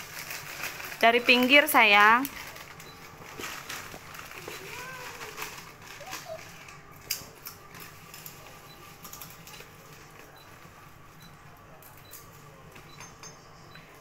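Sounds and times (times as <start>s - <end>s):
plastic packaging crinkling: 0.0s - 10.2s.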